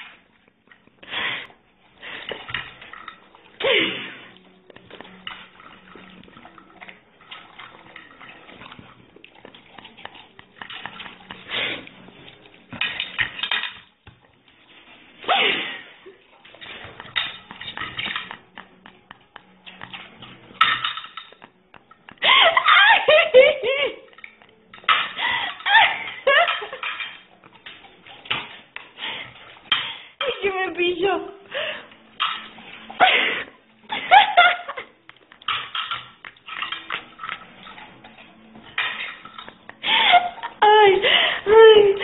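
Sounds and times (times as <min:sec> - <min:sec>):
tableware and cutlery clattering: 0:02.0 - 0:30.5, 0:31.5 - 0:42.0
people laughing: 0:22.2 - 0:24.2, 0:33.0 - 0:35.0.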